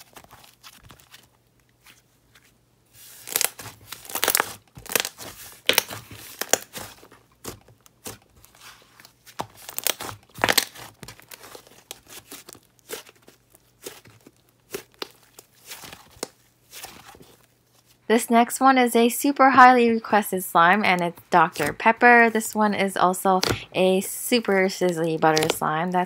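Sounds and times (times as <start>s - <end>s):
slime crackling and popping: 3.1s - 17.5s, 23.4s - 23.7s, 24.4s - 26.0s.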